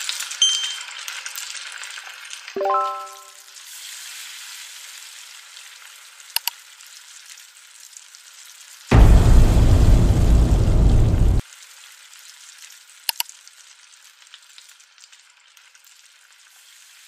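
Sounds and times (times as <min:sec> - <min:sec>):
fish sizzling in oil: 0:00.0 - 0:02.6, 0:03.4 - 0:08.9, 0:11.4 - 0:17.0.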